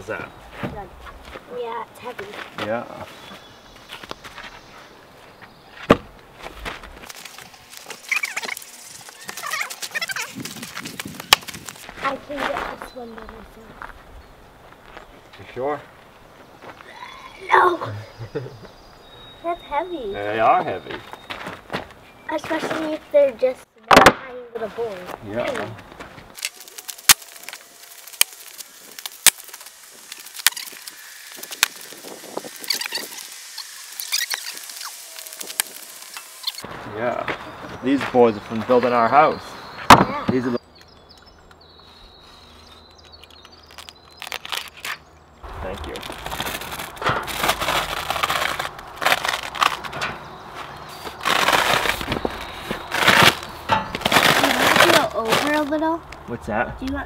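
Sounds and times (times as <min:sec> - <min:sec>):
stiff paper crackling and rustling: 0:06.4 - 0:13.3, 0:24.6 - 0:36.7, 0:42.2 - 0:56.0.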